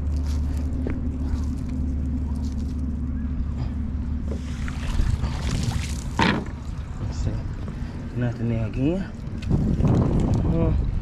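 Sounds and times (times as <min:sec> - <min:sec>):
steady low rumble: 0:00.0 - 0:11.0
water splashing and dripping: 0:04.4 - 0:06.9.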